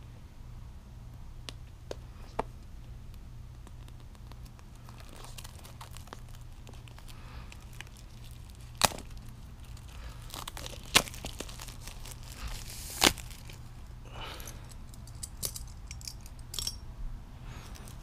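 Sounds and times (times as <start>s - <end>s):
plastic wrap crinkling and tearing: 3.5s - 14.0s.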